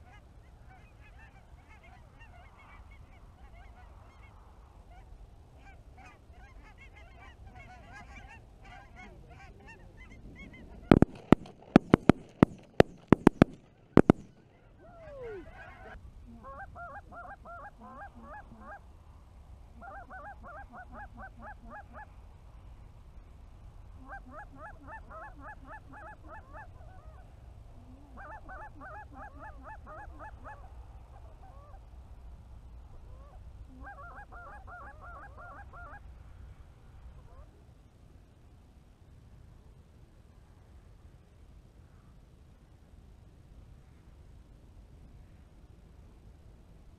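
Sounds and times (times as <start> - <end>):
geese honking: 5.0 - 18.8
shotgun blasts: 10.9 - 14.5.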